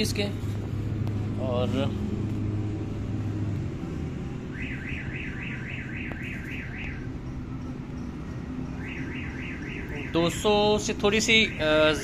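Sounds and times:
electronic alarm warble: 4.5 - 7.3, 8.6 - 10.5.

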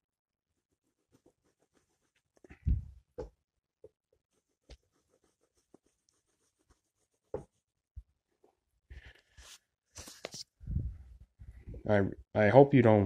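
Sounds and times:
pencil scratching on paper: 0.5 - 2.5, 3.2 - 7.8.

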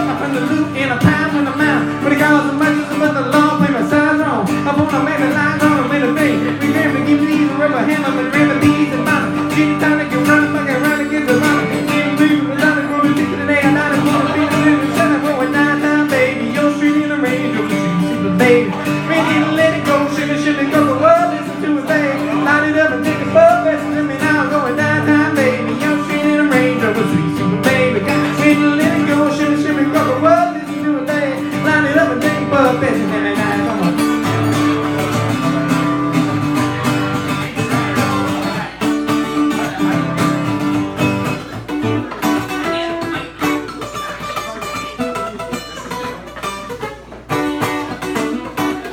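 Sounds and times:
person singing: 0.0 - 36.8
acoustic guitar: 0.0 - 48.9.

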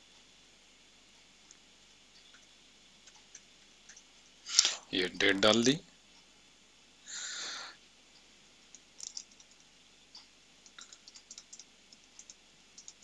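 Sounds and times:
short hiss: 4.5 - 4.9
keyboard typing: 8.7 - 9.7, 10.6 - 13.0
mouse clicks: 8.8 - 9.6, 10.2 - 13.0.

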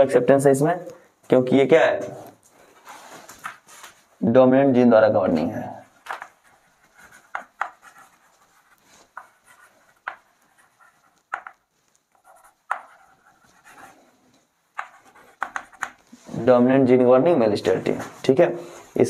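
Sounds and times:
chalk scratching on blackboard: 5.9 - 16.3
chalk tapping on board: 6.0 - 14.0, 14.8 - 16.2.

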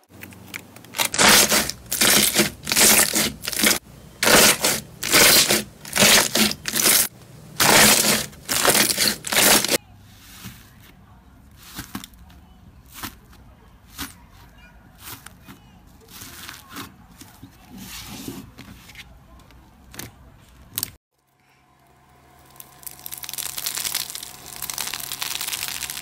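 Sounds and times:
hands squashing slime: 0.9 - 9.8, 22.6 - 26.0
crunchy slime ticks: 22.4 - 26.0.

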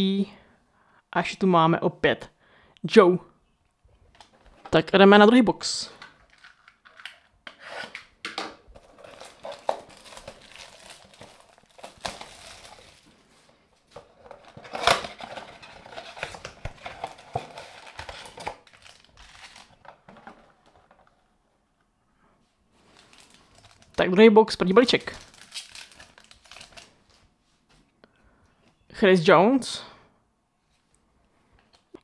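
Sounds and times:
plastic shrink-wrap crinkling: 6.1 - 7.3, 8.7 - 21.0, 22.8 - 24.0, 24.8 - 27.2
foil packs rustling: 8.8 - 20.8, 22.8 - 24.0, 24.8 - 27.1.

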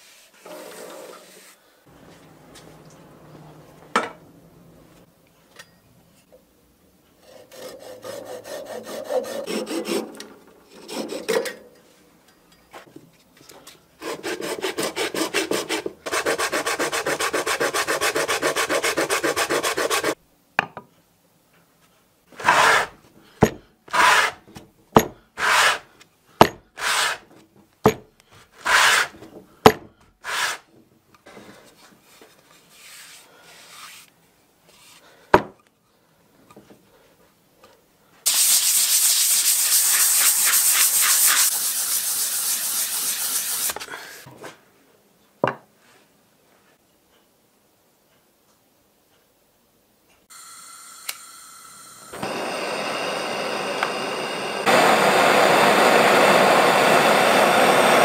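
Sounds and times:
wooden bowl scraping on sandpaper: 0.0 - 1.6, 22.4 - 23.0, 23.9 - 24.5, 25.4 - 25.9, 26.8 - 27.3, 28.6 - 29.2, 30.2 - 30.7, 32.0 - 34.1, 39.0 - 43.8.

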